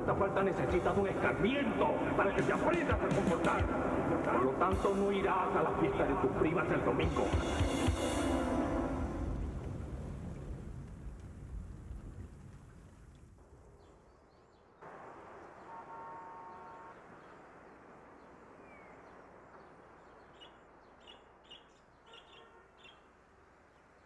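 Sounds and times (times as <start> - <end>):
steady background hiss: 14.8 - 22.0
brief steady tone: 15.7 - 17.0
budgerigar chirping: 20.3 - 23.1.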